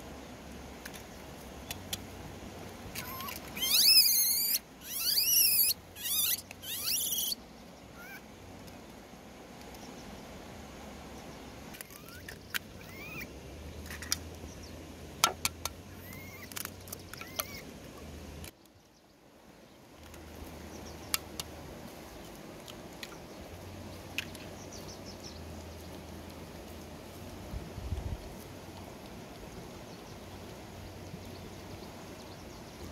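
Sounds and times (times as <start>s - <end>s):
monkey squeaks: 3.0s - 7.4s, 11.8s - 13.3s, 16.0s - 16.5s, 17.2s - 17.6s.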